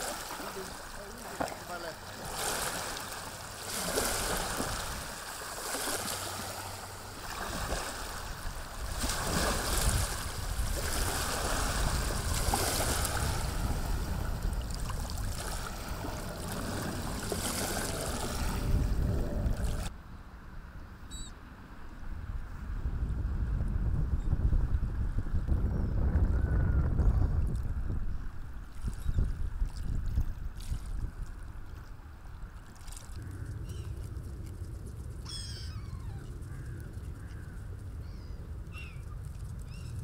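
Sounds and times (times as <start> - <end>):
water lapping in waves: 0.0 - 19.9, 27.4 - 37.9
wind buffeting microphone: 6.8 - 19.9, 22.0 - 32.6.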